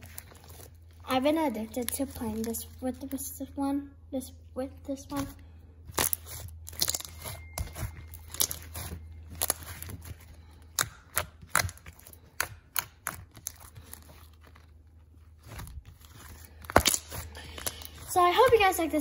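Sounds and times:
slime popping and crackling: 5.9s - 14.6s, 15.3s - 19.0s.

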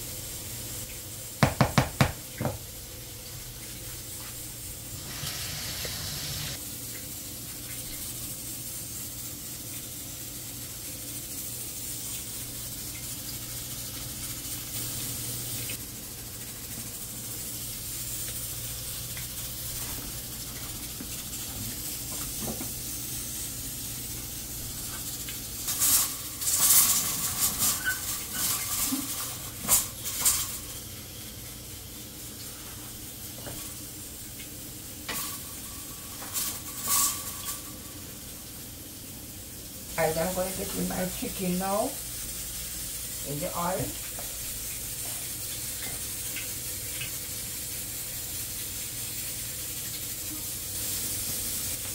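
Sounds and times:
hiss of pots on gas stove: 0.0s - 51.9s
metal clanks of pots and lids: 25.7s - 30.6s, 35.1s - 37.8s.

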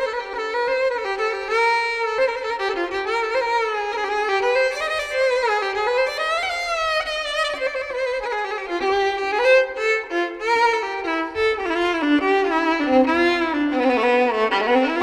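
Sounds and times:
violin melody: 0.0s - 15.0s.

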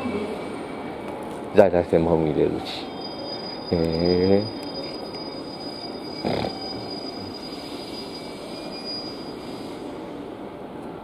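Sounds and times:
electric train running: 3.0s - 10.0s.

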